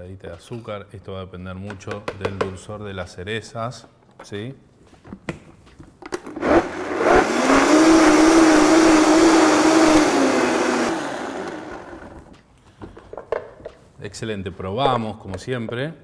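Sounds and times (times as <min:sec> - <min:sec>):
blender running: 0:06.4 - 0:12.4.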